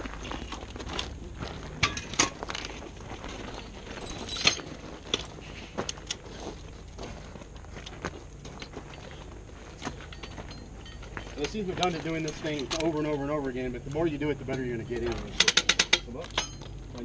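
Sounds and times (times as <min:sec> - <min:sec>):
footsteps on gravel: 0:00.0 - 0:15.4
metallic clicks and clinks: 0:01.8 - 0:06.2, 0:07.8 - 0:13.1, 0:14.6 - 0:17.0.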